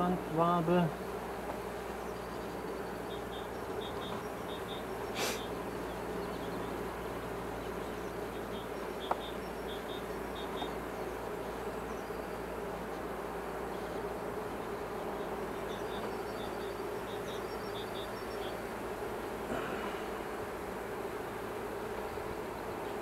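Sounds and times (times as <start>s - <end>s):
honeybees buzzing: 0.0s - 23.0s
brief scrape: 5.2s - 5.4s.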